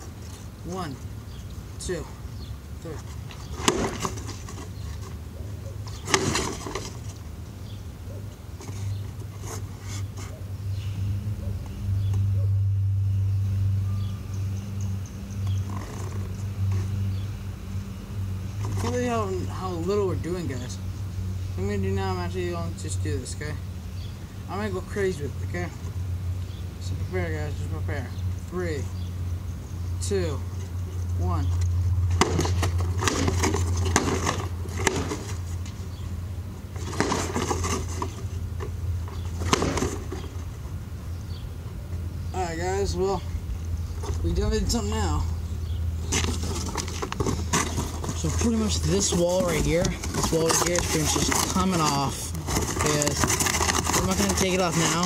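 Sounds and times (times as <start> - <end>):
low mechanical hum: 0.0 - 55.0
rope knot whacking cardboard box: 3.4 - 4.7, 32.1 - 35.8, 36.7 - 40.4.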